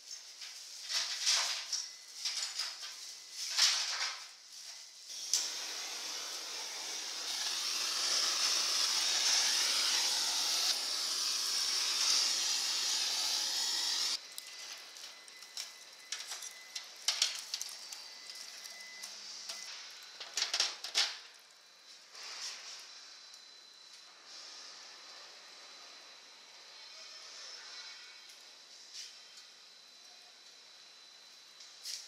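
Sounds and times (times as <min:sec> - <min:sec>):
meat sizzling on charcoal grill: 0:05.1 - 0:14.2.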